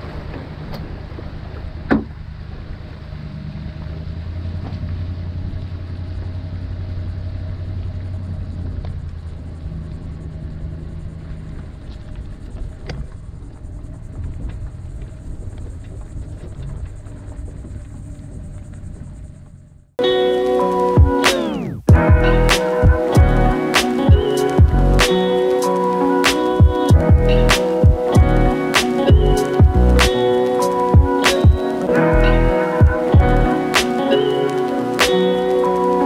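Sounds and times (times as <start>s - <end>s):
truck engine low rumble: 0.0s - 20.0s, 21.5s - 23.6s, 24.5s - 25.2s, 26.9s - 30.2s, 31.9s - 32.6s, 33.2s - 33.5s.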